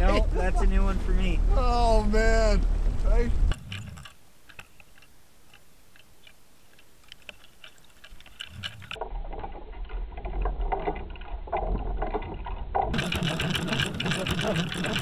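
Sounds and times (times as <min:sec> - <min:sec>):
faint underwater ticks and clicks: 0:03.5 - 0:15.0.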